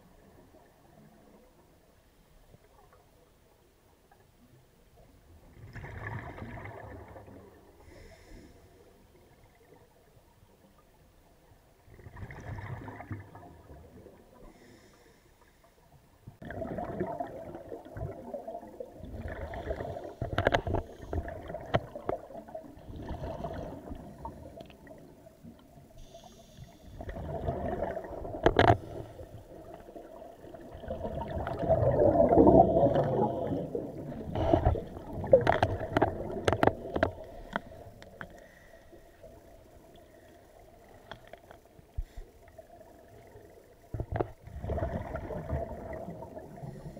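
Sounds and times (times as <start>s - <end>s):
faint steady hum: 0.0s - 46.9s
regulator air bubbling underwater: 16.3s - 46.9s.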